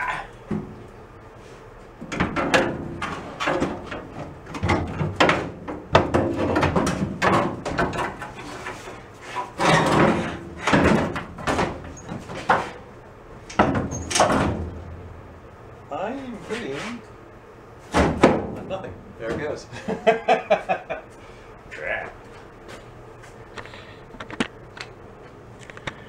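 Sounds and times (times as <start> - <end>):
metal panel clunks and scrapes: 2.1 - 12.8.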